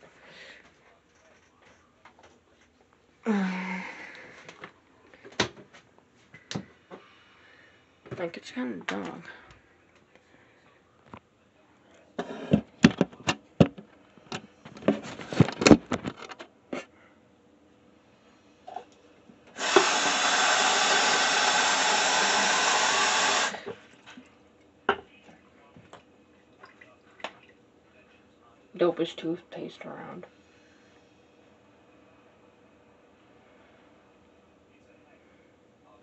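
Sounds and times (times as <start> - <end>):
sink faucet running: 19.5 - 23.7.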